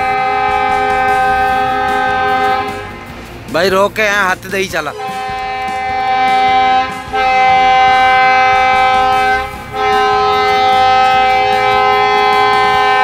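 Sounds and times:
train horn blasts: 0.0s - 3.2s, 4.9s - 13.0s.

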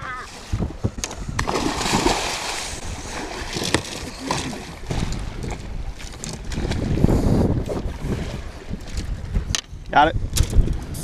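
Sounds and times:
wind on microphone: 0.0s - 11.0s
water splashing against boat: 0.2s - 9.6s
fish thrashing at surface: 1.4s - 5.2s.

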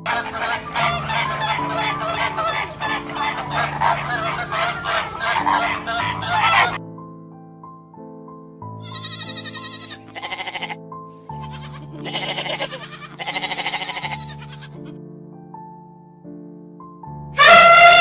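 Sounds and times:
elephant trumpeting: 0.0s - 6.8s, 17.4s - 18.0s
soft background music: 0.0s - 17.4s
goat bleating: 8.8s - 14.9s.

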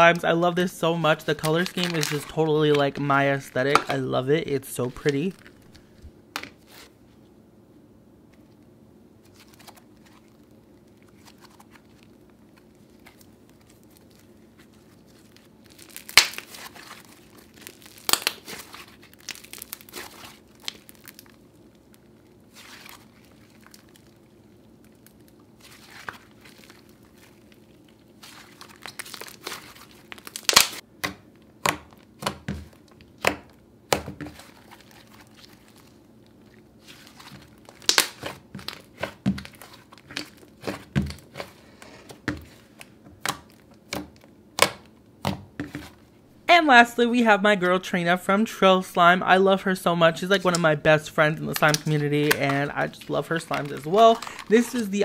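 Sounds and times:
slime squishing: 0.0s - 7.0s, 9.2s - 46.1s, 50.4s - 55.0s
slime crackling and popping: 1.0s - 4.0s, 9.2s - 41.6s, 42.2s - 45.9s, 51.4s - 55.0s.

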